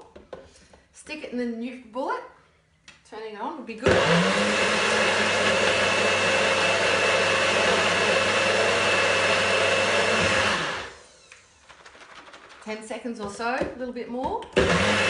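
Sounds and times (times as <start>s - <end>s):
blender motor running: 3.8s - 11.6s, 14.6s - 15.0s.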